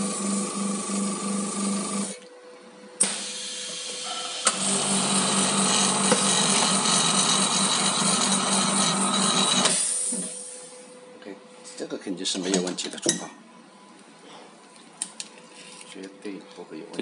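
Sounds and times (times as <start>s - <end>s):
vacuum pump pulsing hum: 0.0s - 11.6s.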